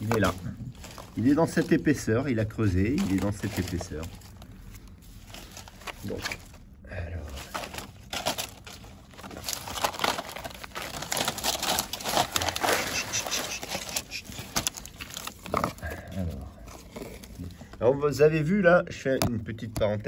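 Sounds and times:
palm fibres crackling and snapping: 0:00.0 - 0:06.7, 0:07.4 - 0:16.2.

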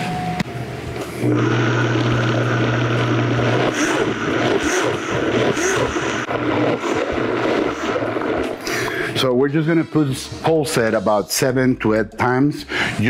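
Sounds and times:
blender motor churning: 0:01.2 - 0:09.2.

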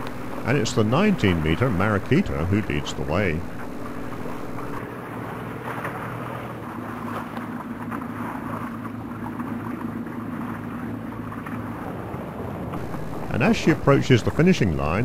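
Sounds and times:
water wash hissing: 0:00.0 - 0:04.8, 0:12.8 - 0:15.0
motorboat engine humming: 0:00.0 - 0:15.0
wind: 0:00.0 - 0:15.0.

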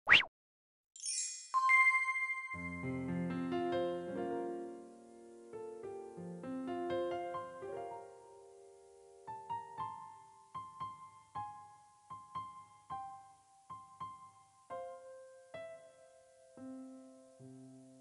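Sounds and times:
gentle piano melody: 0:01.6 - 0:18.0.

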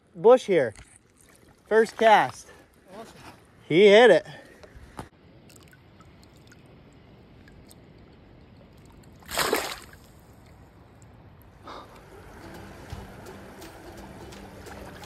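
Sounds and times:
sharp splash in water: 0:09.2 - 0:10.2
creek water running: 0:11.7 - 0:15.0.

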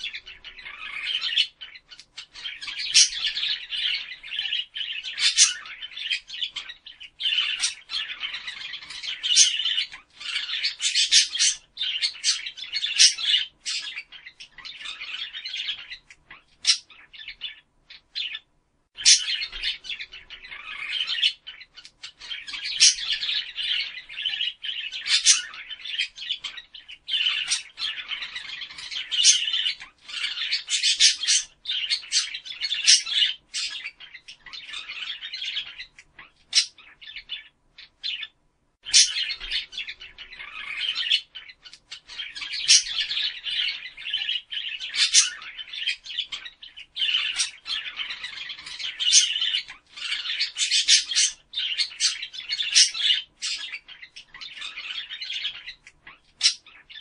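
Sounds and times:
budgerigars chattering: 0:00.0 - 0:57.0
sharp bird squawks: 0:38.1 - 0:55.8.

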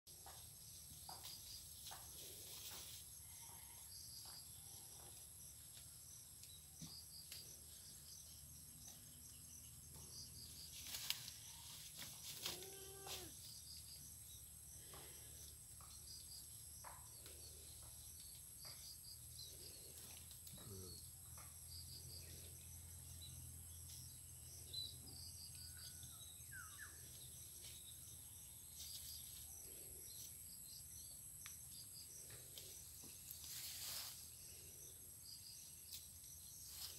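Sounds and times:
high insect buzz: 0:10.2 - 0:14.0
goats rustling in undergrowth: 0:10.6 - 0:13.3, 0:32.6 - 0:34.4, 0:36.0 - 0:36.9.

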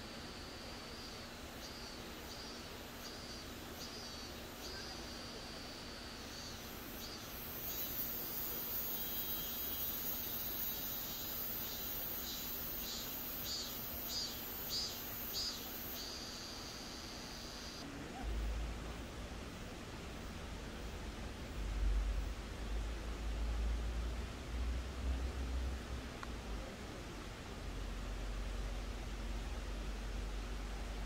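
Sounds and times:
high pulsing insect shrill: 0:00.0 - 0:17.8
insects trilling: 0:00.0 - 0:17.9
faint low hum: 0:00.0 - 0:31.0.

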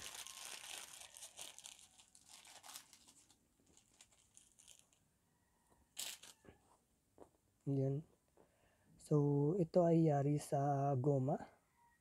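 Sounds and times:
plastic bag crinkling: 0:00.0 - 0:05.0, 0:06.0 - 0:06.4.

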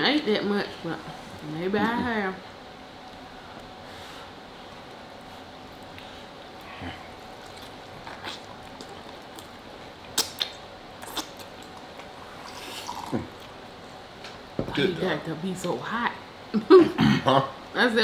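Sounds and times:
faint steady hum: 0:00.0 - 0:18.0
people chewing food: 0:03.0 - 0:13.6.

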